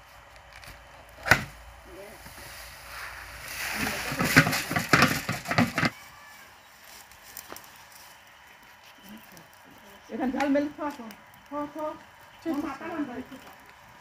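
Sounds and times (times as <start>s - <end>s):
water and grain pouring out: 2.0s - 5.8s.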